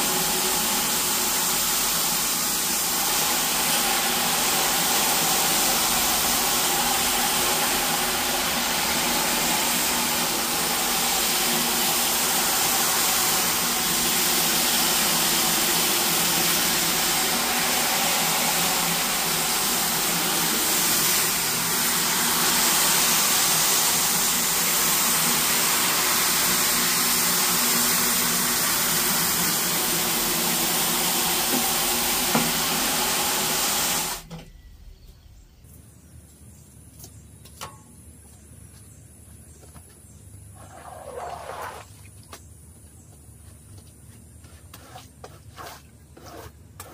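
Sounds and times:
hiss of spraying water: 0.0s - 34.3s
machine hum: 0.0s - 36.7s.

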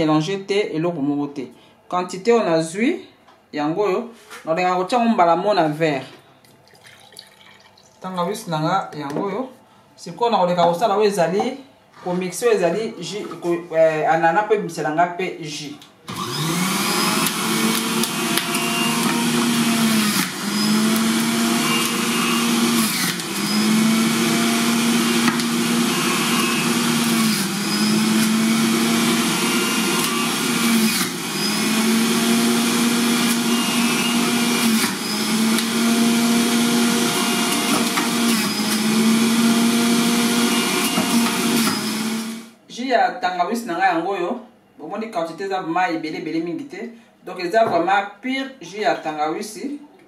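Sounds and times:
electric juicer motor humming: 16.1s - 42.6s.

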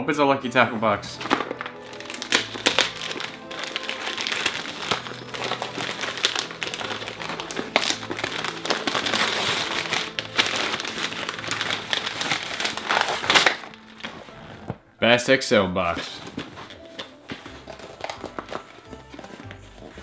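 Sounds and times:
background music: 0.0s - 20.0s
paper tearing and crumpling: 1.2s - 14.8s, 15.9s - 20.0s.

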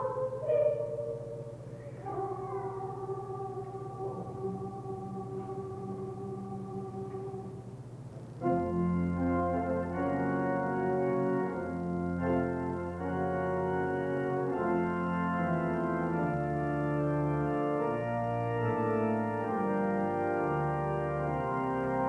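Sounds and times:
organ playing chords: 0.0s - 22.0s.

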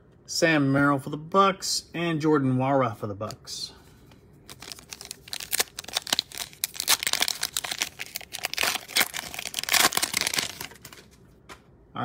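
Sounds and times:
foil wrapper tearing and crinkling: 4.5s - 11.2s.

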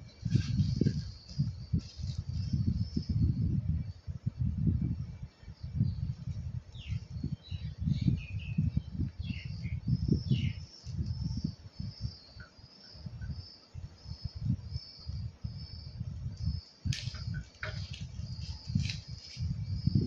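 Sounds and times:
birds chirping: 5.6s - 20.0s.

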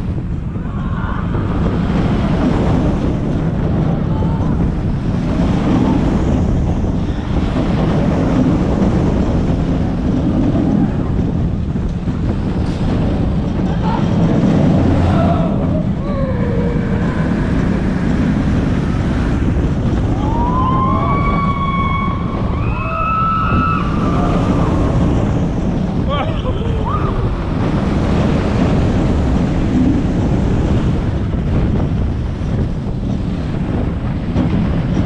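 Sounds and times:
roller coaster train rumbling: 0.0s - 35.0s
wind buffeting microphone: 0.0s - 35.0s.

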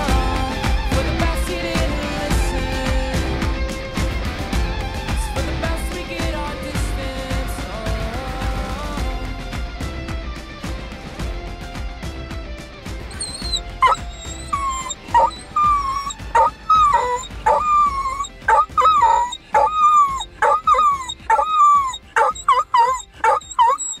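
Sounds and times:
dog howling: 13.1s - 24.0s.

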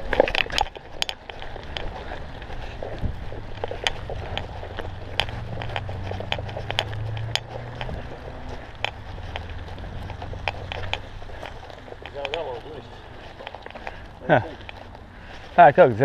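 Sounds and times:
bike clicking and rattling: 0.0s - 16.0s
bike tyres humming on dirt path: 0.0s - 16.0s
tyres rolling over dry leaves: 0.0s - 16.0s.

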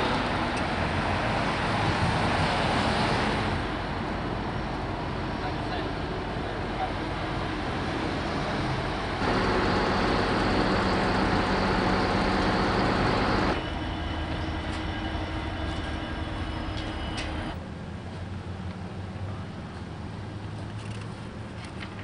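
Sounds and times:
freight train rumbling past: 0.0s - 20.3s
loud rush of noise: 9.2s - 16.6s
high wheel squeals: 9.2s - 17.6s.

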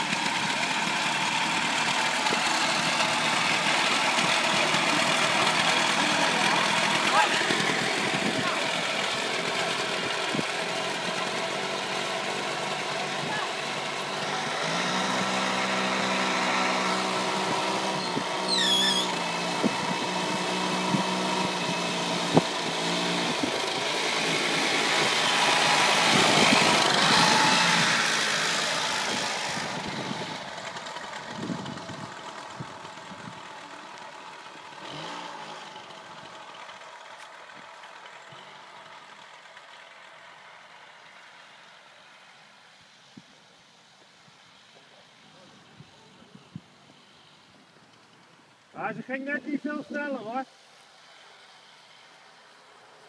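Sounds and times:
go-kart engine driving off: 0.0s - 42.4s.

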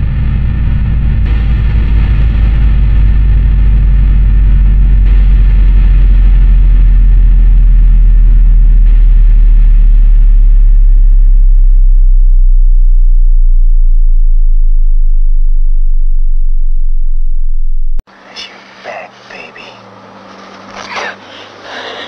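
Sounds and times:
harsh distorted noise: 0.0s - 16.8s
deep steady drone: 0.0s - 22.0s.

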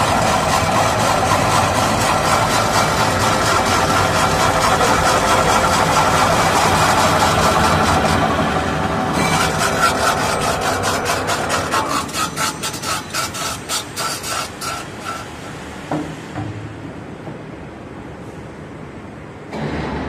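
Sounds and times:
spinning machine winding down: 0.0s - 12.0s
rhythmic rubbing scrape: 0.0s - 15.4s.

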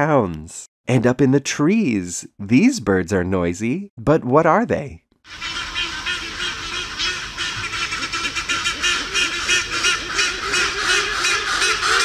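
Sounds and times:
hornbills calling: 5.3s - 12.0s.

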